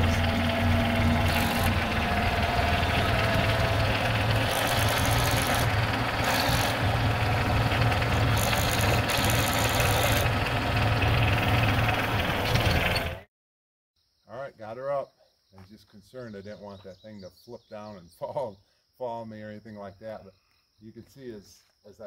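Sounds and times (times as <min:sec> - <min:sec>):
tractor diesel engine idling: 0:00.0 - 0:13.2.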